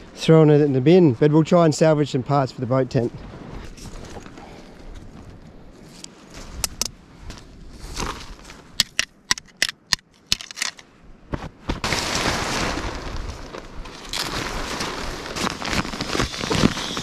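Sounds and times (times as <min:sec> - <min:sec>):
plastic tent pegs clacking: 0:08.8 - 0:10.8
tent fabric rustling: 0:11.3 - 0:17.0.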